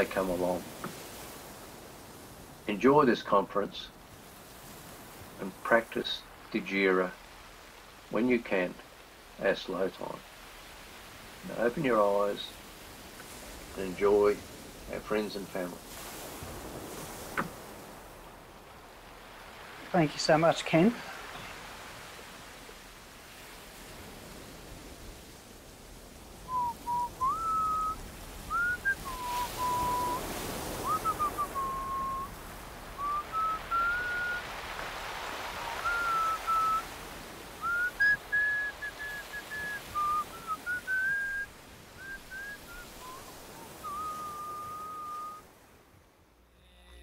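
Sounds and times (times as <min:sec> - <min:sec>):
person whistling a slow melody: 0:26.5 - 0:30.2, 0:30.8 - 0:32.3, 0:33.0 - 0:34.4, 0:35.7 - 0:36.8, 0:37.6 - 0:45.4.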